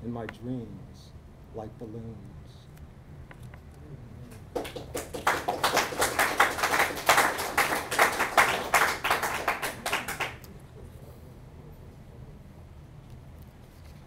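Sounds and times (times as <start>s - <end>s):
audience applauding: 4.3s - 10.5s.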